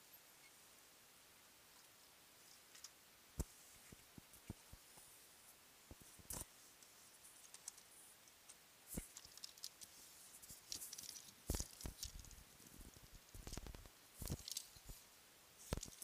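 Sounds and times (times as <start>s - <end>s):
handling clicks and rubs: 5.9s - 16.0s.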